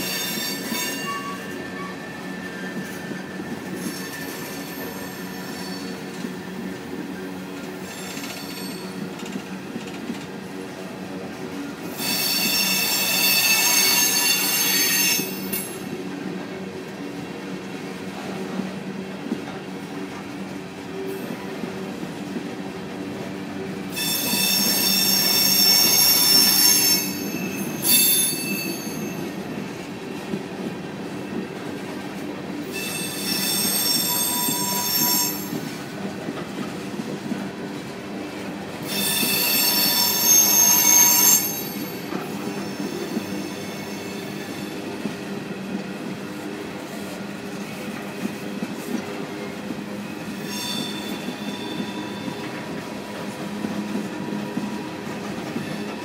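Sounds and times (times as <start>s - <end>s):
high-pitched wheel squeal: 0.0s - 6.1s, 12.0s - 15.7s, 24.0s - 29.4s, 32.8s - 35.6s, 38.9s - 44.6s, 50.4s - 52.6s
train wheels rumbling on rail: 0.0s - 56.0s.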